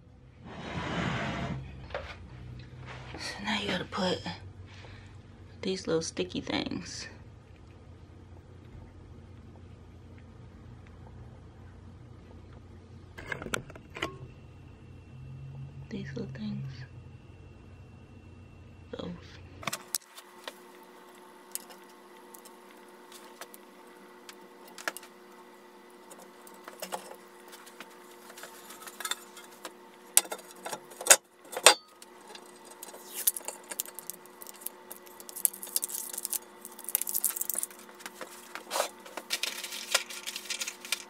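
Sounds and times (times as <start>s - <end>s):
handling rustle: 32.3s - 41.0s.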